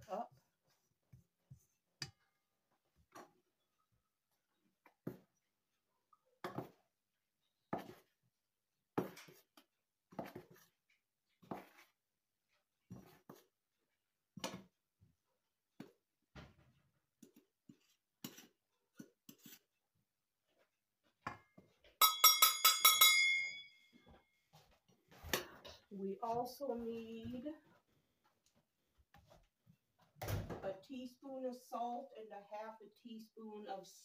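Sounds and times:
metallic taps on bowl ringing: 0:22.0 - 0:23.8.

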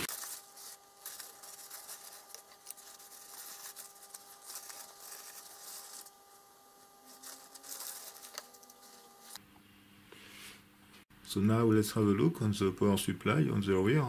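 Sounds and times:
paper towel rustling and crinkling: 0:00.0 - 0:09.4
faint steady whine: 0:00.0 - 0:14.0.

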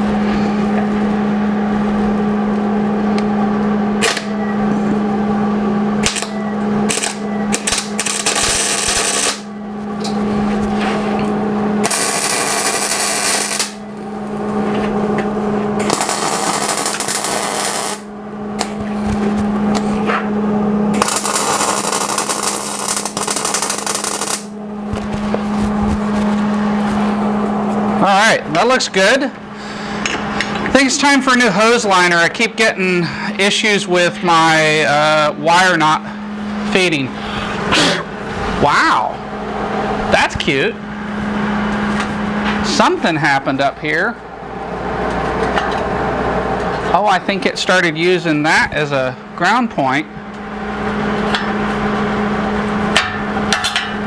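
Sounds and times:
steady low hum: 0:00.0 - 0:54.0
welder arc crackling: 0:06.9 - 0:09.5, 0:11.8 - 0:14.6, 0:15.8 - 0:19.3, 0:21.0 - 0:27.1.

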